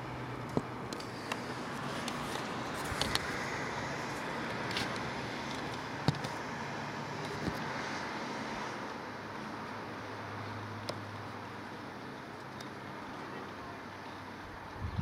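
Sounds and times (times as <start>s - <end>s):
outdoor background hum: 0.0s - 15.0s.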